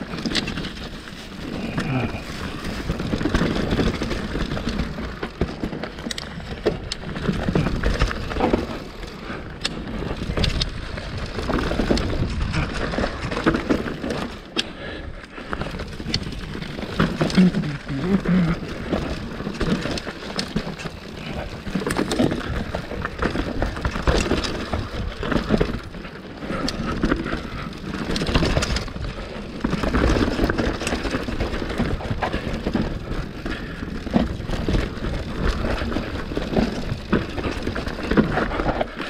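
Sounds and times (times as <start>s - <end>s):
bike knocking and rattling: 0.0s - 39.0s
bike tyres on dirt: 0.0s - 39.0s.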